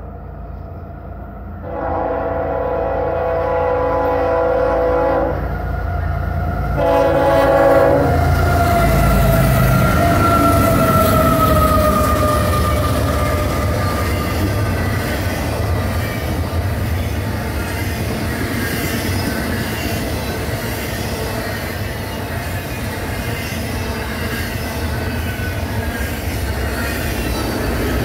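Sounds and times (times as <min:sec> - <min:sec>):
diesel locomotive whine: 0:00.0 - 0:28.0
train air horn blasts: 0:01.6 - 0:05.6, 0:06.8 - 0:08.2
train wheels rumbling and clattering: 0:05.5 - 0:28.0.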